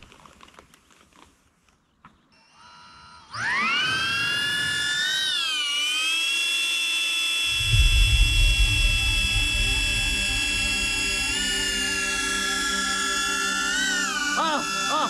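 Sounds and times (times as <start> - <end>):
drone propellers whining: 2.6 - 15.0
low rumble: 7.5 - 14.2.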